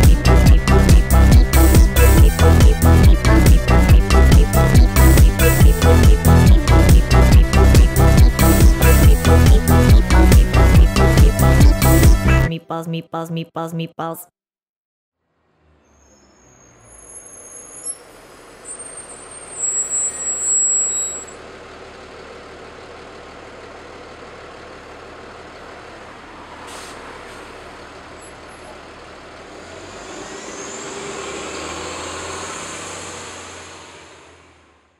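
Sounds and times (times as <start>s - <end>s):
bus engine idling: 0.0s - 12.5s, 16.2s - 34.9s
bus engine whine pulling away: 0.0s - 12.5s, 15.3s - 34.9s
bus brakes: 15.7s - 21.4s, 26.6s - 28.8s.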